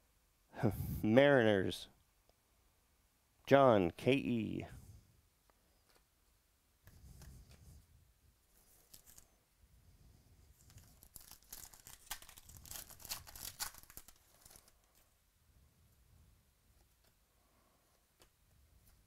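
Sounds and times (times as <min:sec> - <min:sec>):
card pack wrapper tearing: 0:08.8 - 0:09.3, 0:10.6 - 0:15.1.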